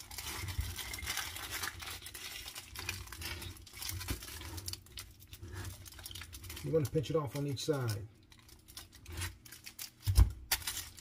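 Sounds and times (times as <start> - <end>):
aluminium foil crinkling: 0.0 - 11.0.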